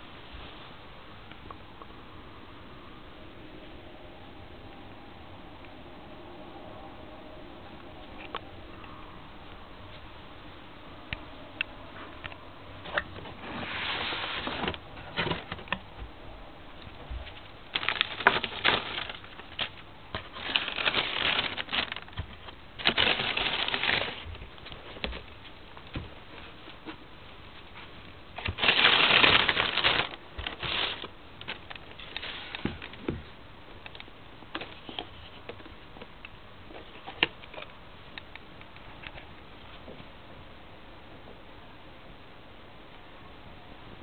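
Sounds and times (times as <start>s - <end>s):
tissue paper rustling: 13.3s - 15.4s, 17.3s - 25.1s, 27.6s - 33.0s
cardboard box handling: 17.7s - 25.3s, 28.4s - 33.0s.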